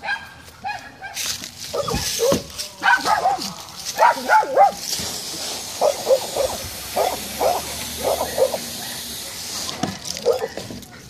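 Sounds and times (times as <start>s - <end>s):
dog barking: 0.0s - 4.8s, 5.8s - 9.1s, 10.2s - 10.6s
steady hiss: 1.3s - 11.0s.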